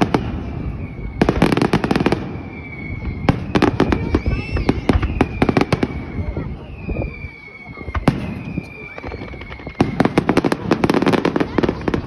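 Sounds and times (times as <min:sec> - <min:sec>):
fireworks cracking: 0:00.0 - 0:12.0.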